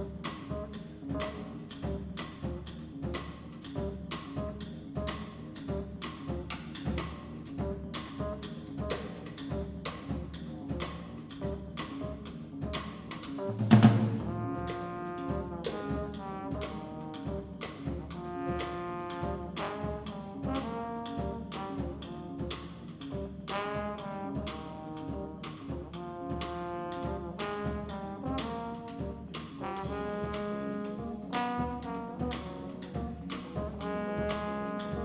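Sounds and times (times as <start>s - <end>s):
double bass: 0.0s - 35.0s
drum kit beat: 0.0s - 35.0s
trombone melody: 0.0s - 35.0s.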